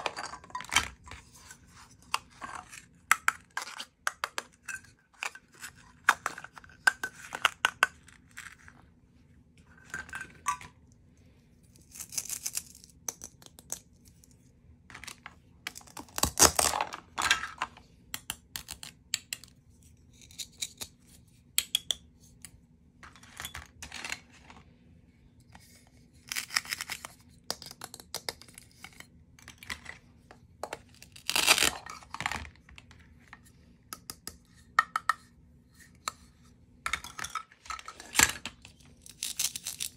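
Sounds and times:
plastic pieces clicking and tapping: 2.1 - 8.6, 12.2 - 19.6, 21.5 - 22.6, 26.4 - 30.0, 33.9 - 35.3.

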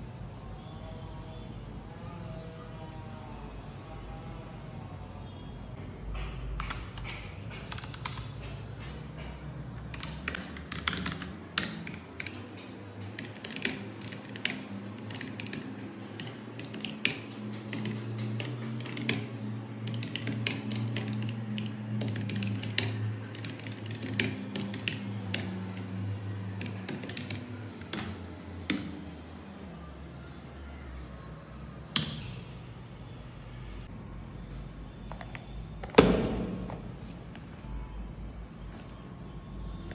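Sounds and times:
mechanical keyboard typing: 6.6 - 8.3, 9.8 - 29.0.

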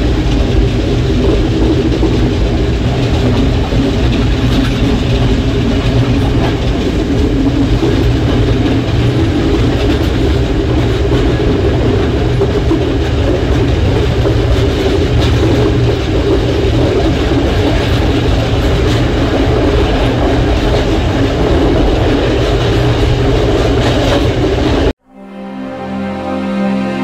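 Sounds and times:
train wheels rumbling on track: 0.0 - 25.0
soft music: 25.0 - 27.0.

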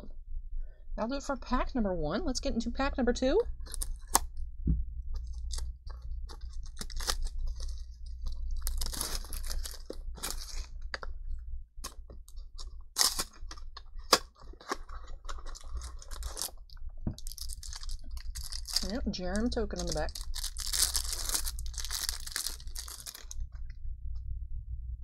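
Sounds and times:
plastic wrap crinkling: 3.6 - 4.3, 5.1 - 11.2, 11.8 - 23.6.

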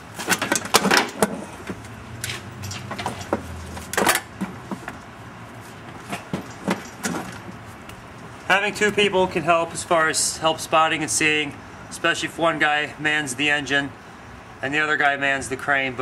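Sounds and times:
lifting chain clinking: 2.2 - 4.3, 6.1 - 7.7
metal clunking: 5.9 - 7.7.

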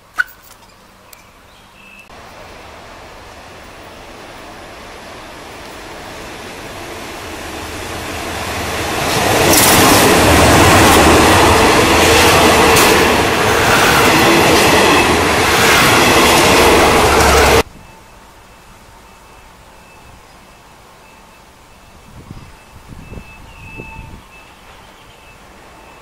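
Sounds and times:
train rumble: 2.1 - 26.0
train wheels clacking over rail joints: 8.8 - 17.6.

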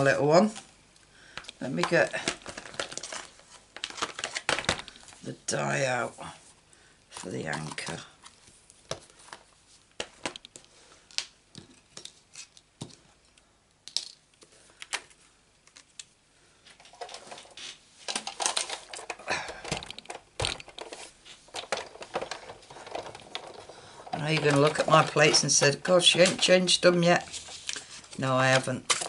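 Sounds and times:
plastic cases clicking and tapping: 1.4 - 5.0, 18.1 - 26.8
clatter of objects: 1.8 - 5.1, 16.8 - 29.0.

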